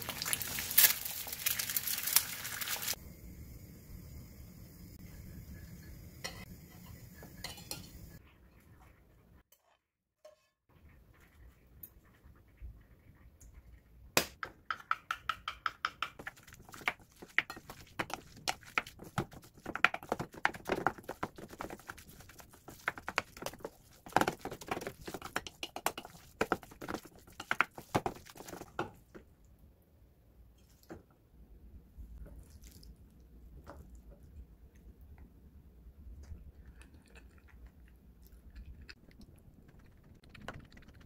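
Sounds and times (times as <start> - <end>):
spoon knocking and scraping steel bowl: 6.2 - 8.2, 14.7 - 29.0.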